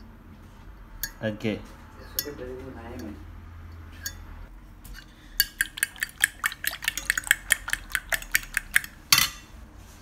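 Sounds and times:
fork clinking against plate: 5.4s - 9.5s.

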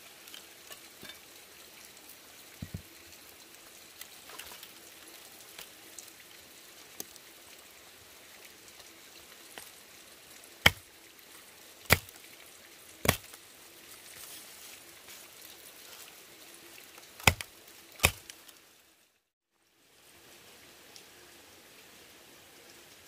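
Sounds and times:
cleaver chopping on wooden block: 11.9s - 12.1s, 17.2s - 18.2s.

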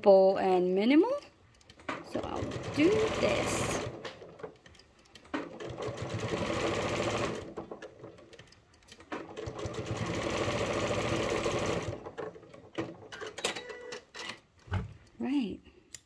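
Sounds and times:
sewing machine stitching: 1.6s - 13.5s.

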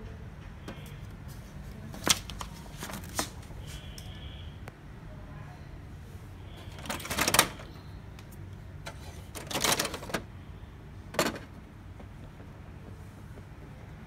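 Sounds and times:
plastic rattling and scraping: 6.6s - 7.8s, 8.8s - 10.3s, 11.1s - 12.9s.

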